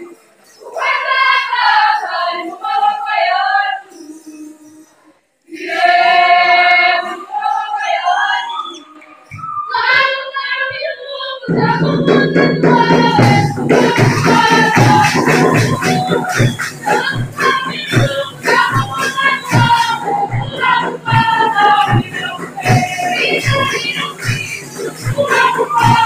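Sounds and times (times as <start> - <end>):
group of high voices singing: 0.0 - 26.0
music with steady beat: 11.4 - 26.0.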